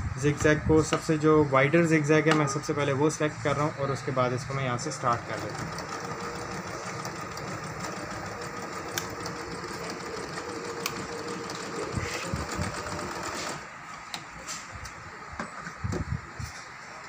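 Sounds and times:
sewing machine stitching: 5.0s - 13.7s.

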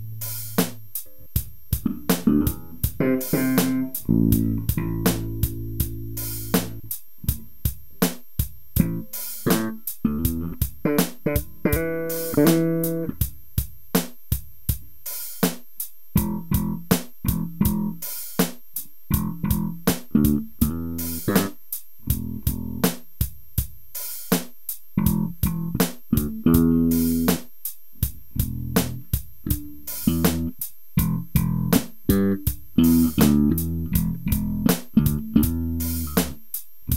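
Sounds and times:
plucked electric bass: 0.0s - 7.5s, 8.8s - 13.2s, 16.2s - 18.0s, 19.1s - 21.5s, 22.1s - 22.8s, 25.0s - 27.3s, 28.4s - 36.9s
drum machine ticking beat: 0.0s - 36.9s.

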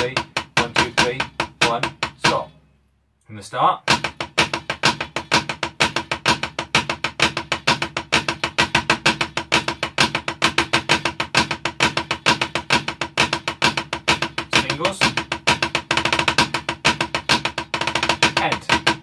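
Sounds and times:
snare drum played with sticks: 0.0s - 2.5s, 3.9s - 19.0s.

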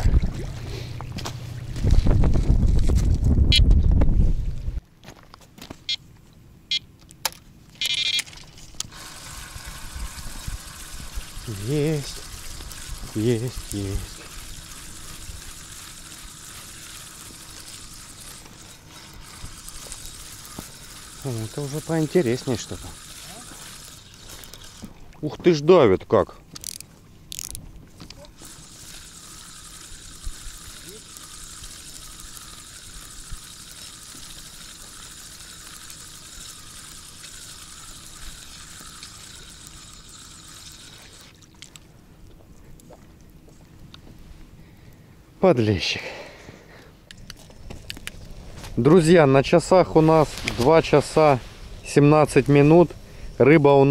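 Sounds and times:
fishing reel winding: 7.8s - 24.8s, 26.6s - 27.6s, 28.2s - 41.3s
steady hiss: 8.9s - 24.8s, 28.4s - 41.3s, 48.4s - 53.9s.

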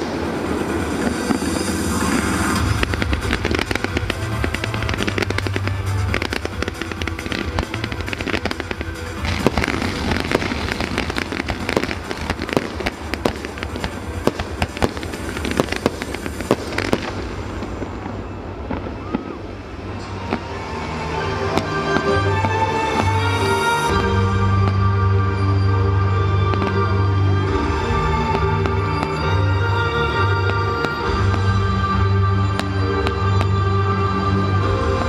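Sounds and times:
fireworks popping and banging: 0.0s - 20.5s, 27.6s - 33.8s.

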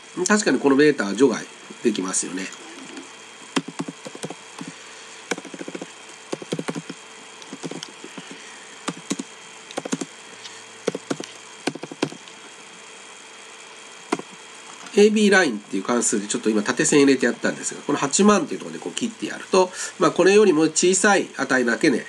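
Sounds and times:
faint steady hum: 0.0s - 22.0s
computer keyboard typing: 2.8s - 4.7s, 5.3s - 10.1s, 10.8s - 12.4s.

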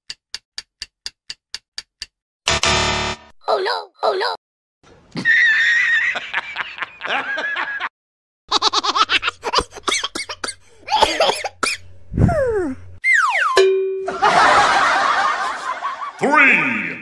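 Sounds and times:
man laughing: 5.1s - 7.9s
rapid pulsing laughter: 14.2s - 16.2s.

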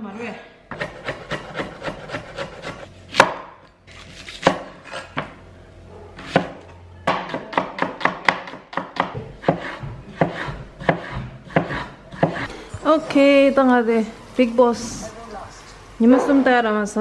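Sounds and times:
knife chopping on wooden board: 0.7s - 3.6s, 6.2s - 12.5s.

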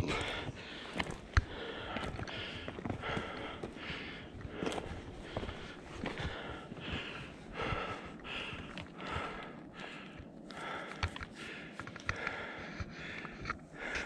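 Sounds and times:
person breathing hard: 0.0s - 14.0s
boots scraping on rock: 0.2s - 7.2s.

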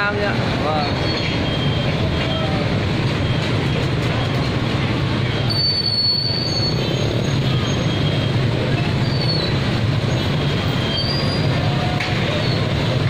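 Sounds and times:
motorbike engines: 0.0s - 13.0s
train rumbling past: 0.0s - 13.0s
train wheel squeals: 0.8s - 4.6s, 5.3s - 13.0s.

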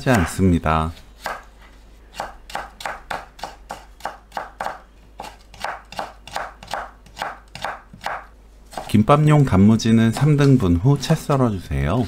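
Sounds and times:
knife chopping on wooden board: 0.1s - 0.4s, 1.2s - 1.4s, 2.2s - 8.9s.

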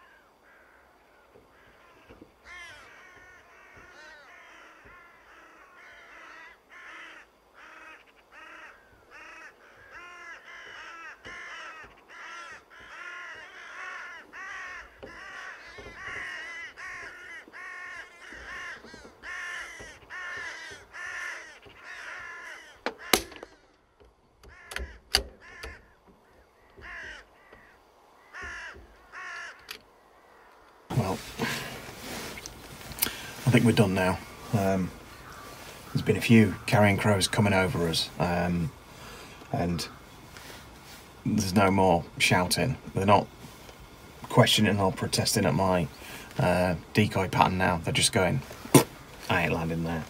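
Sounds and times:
crows cawing: 0.0s - 41.0s, 47.6s - 50.0s
sharp cracks: 22.7s - 24.1s.

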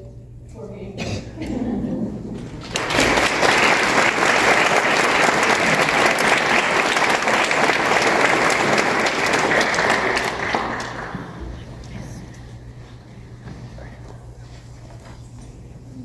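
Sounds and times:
audience applauding: 2.4s - 11.7s.

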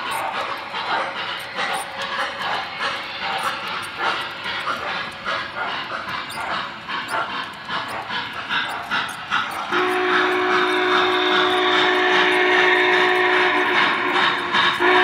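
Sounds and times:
model steam locomotive chuffing: 0.0s - 15.0s
steam whistle chord: 9.7s - 14.2s, 14.8s - 15.0s.

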